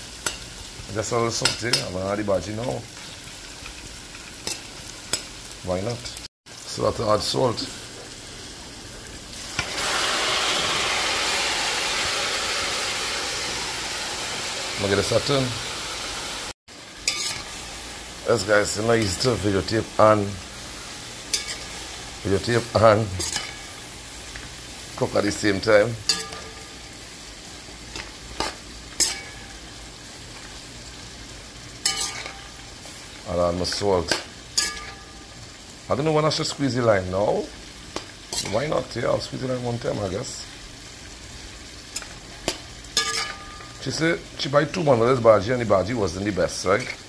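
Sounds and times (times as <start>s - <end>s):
greens sizzling in hot oil: 0.0s - 47.0s
metal spoon stirring: 17.0s - 17.6s, 21.3s - 21.8s, 23.2s - 23.6s, 26.1s - 26.8s, 27.9s - 29.4s, 31.8s - 32.5s, 34.1s - 35.1s, 43.0s - 43.7s.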